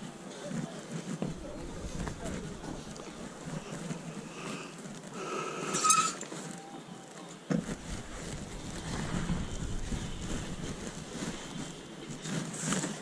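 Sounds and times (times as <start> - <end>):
outdoor background noise: 0.0 - 13.0
hangers scraping on metal rail: 1.4 - 6.4
sharp squealing scrape: 5.5 - 7.2.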